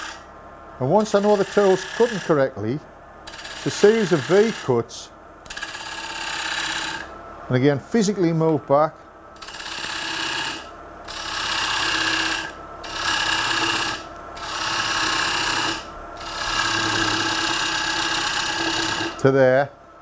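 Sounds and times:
gouge scraping spinning wood: 0:00.0 - 0:00.2, 0:00.8 - 0:02.5, 0:03.3 - 0:04.8, 0:05.4 - 0:07.1, 0:09.4 - 0:19.3
lathe motor humming: 0:00.0 - 0:02.6, 0:03.2 - 0:07.1, 0:08.1 - 0:19.4.

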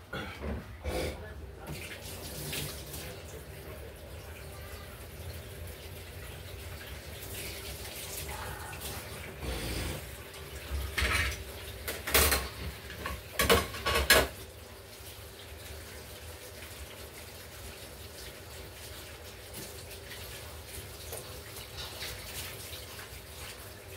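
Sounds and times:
water running: 0:00.2 - 0:23.9
dishes and cutlery clattering: 0:10.7 - 0:14.4.

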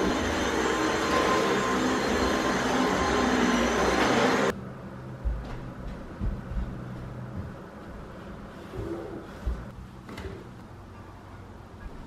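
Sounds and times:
vacuum cleaner running: 0:00.0 - 0:04.5.

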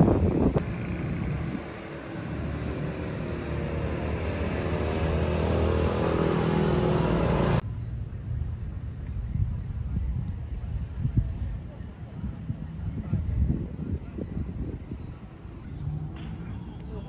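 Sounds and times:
vehicle engine approaching: 0:00.0 - 0:08.5, 0:15.6 - 0:17.0
faint street background: 0:00.0 - 0:17.0.

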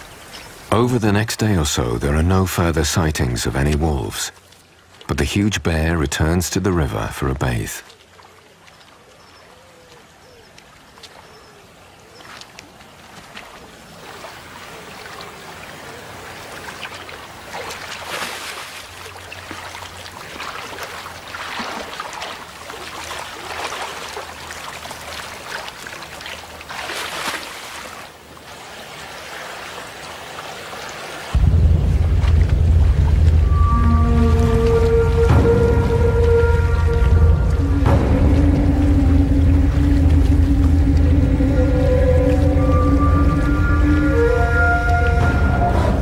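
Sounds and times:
river water running over stones: 0:00.0 - 0:45.6
bear splashing through water: 0:12.1 - 0:45.6.

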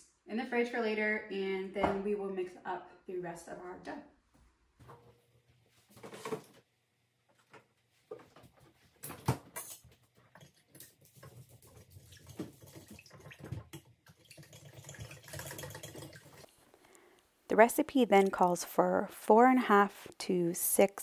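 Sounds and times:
whisk sloshing in glass bowl: 0:10.3 - 0:16.5.

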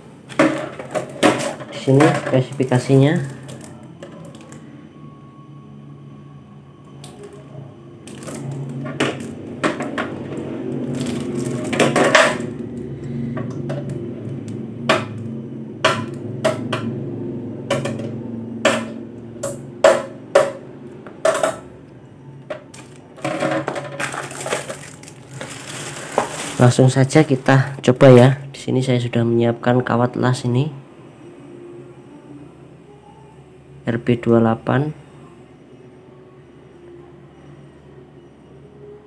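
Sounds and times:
low hum: 0:00.0 - 0:39.0
plastic rustling: 0:00.3 - 0:04.6, 0:08.0 - 0:12.6, 0:22.7 - 0:28.1.

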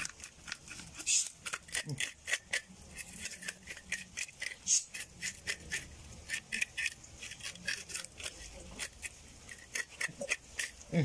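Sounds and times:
knife scraping fish scales: 0:00.0 - 0:10.8.

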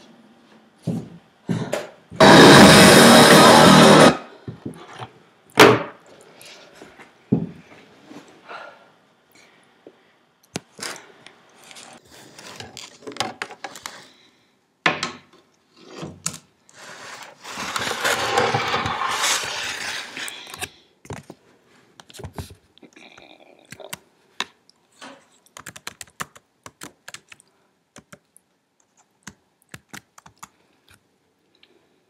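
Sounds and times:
knocks and scrapes: 0:17.4 - 0:20.5.

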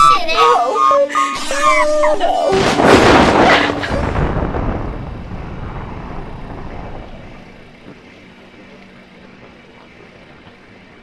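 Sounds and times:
low noisy rumble: 0:00.0 - 0:11.0.

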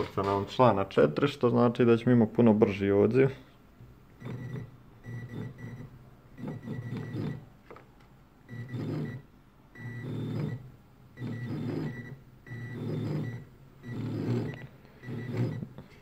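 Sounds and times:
stepper motors whirring: 0:11.2 - 0:15.7.

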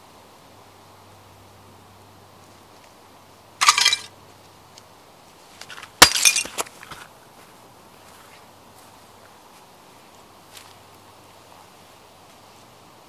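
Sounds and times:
plates crunching under boot: 0:03.6 - 0:04.1, 0:05.6 - 0:07.1
shards clinking: 0:03.6 - 0:04.1, 0:06.0 - 0:06.6.

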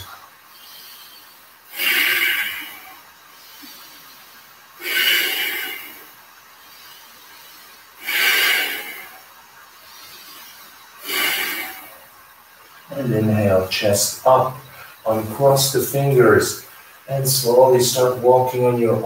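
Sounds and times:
man breathing deeply: 0:00.0 - 0:12.9, 0:14.6 - 0:15.1.

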